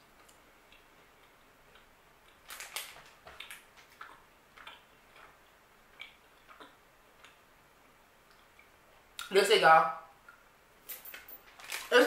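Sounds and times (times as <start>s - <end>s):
chewing candy crunches: 2.2s - 5.3s, 11.5s - 12.0s.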